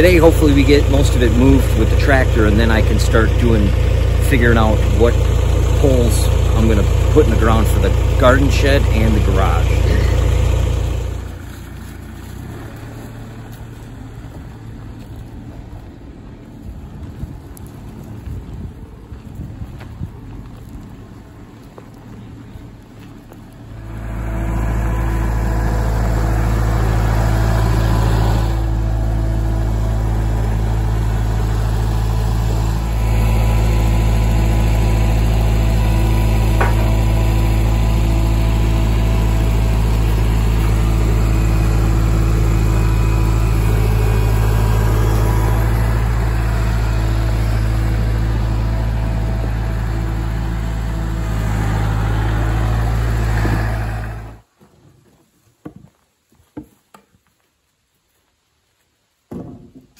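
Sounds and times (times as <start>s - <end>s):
tractor diesel engine running: 0.0s - 54.6s
wind noise on microphone: 16.7s - 21.4s.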